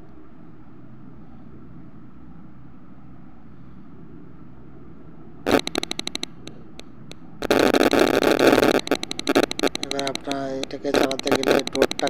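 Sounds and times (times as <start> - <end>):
rapid clicking: 5.5 - 12.0.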